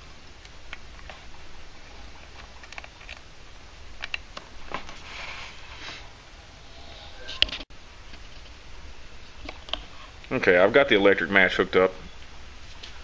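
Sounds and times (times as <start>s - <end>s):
small clicks and rustling of wires: 0.4s - 3.3s, 4.0s - 5.0s.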